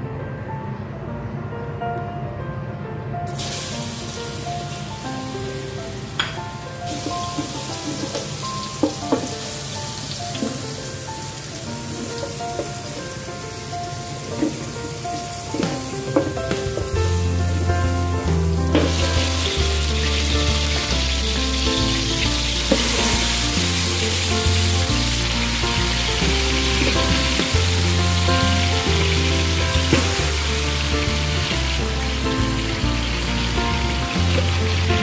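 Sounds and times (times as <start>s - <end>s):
food sizzling in hot oil: 3.3s - 35.0s
background music with bass: 15.8s - 35.0s.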